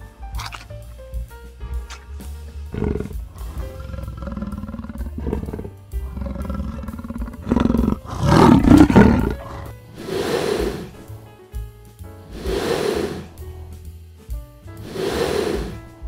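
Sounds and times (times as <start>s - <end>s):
background music: 0.0s - 16.0s
animal hissing exhale: 1.9s - 11.2s, 12.2s - 14.0s, 14.7s - 16.0s
large animal growling and roaring: 2.7s - 11.0s, 12.3s - 13.4s, 14.8s - 15.9s.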